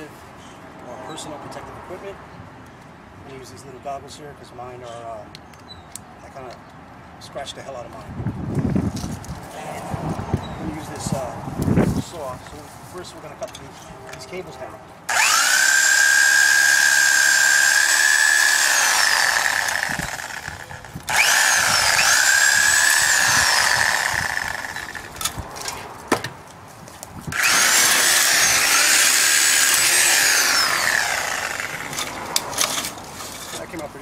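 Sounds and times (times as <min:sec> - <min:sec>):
reciprocating saw cutting steel cable: 0:15.1 - 0:25.4, 0:27.3 - 0:33.7.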